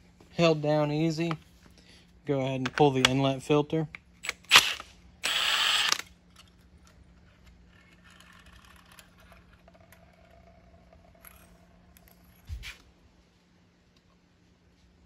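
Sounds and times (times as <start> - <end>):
power tool spinning socket: 4.2 - 12.3.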